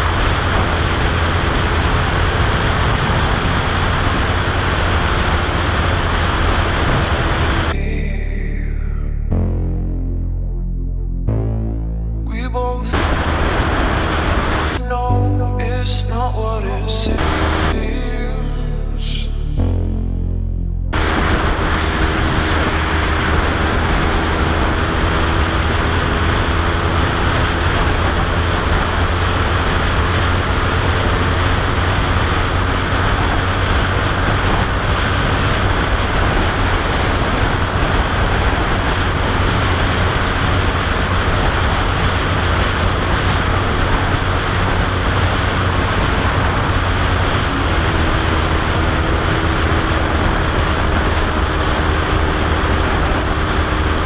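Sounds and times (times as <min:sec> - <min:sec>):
wind rush on microphone: 0:00.0 - 0:07.8, 0:21.0 - 0:54.0
motorcycle engine drone: 0:00.0 - 0:54.0.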